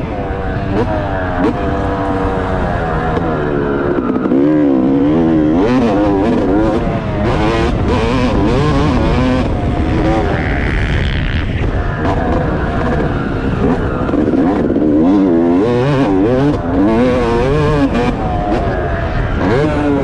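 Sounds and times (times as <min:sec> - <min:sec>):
motocross engine revving: 0:00.0 - 0:20.0.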